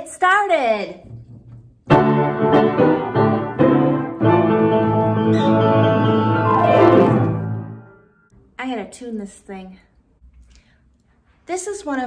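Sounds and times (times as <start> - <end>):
upright piano notes and chords: 1.9 - 8.0.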